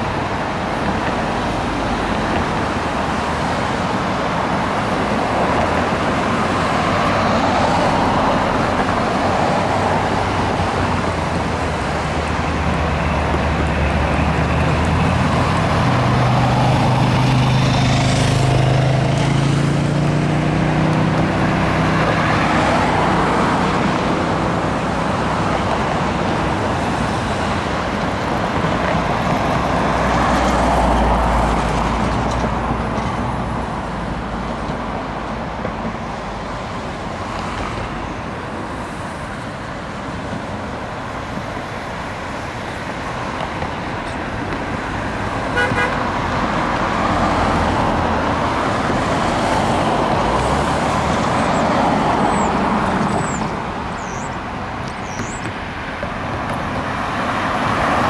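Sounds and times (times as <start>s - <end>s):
cars passing on a bridge: 0.0s - 58.0s
car horn toot: 45.5s - 46.1s.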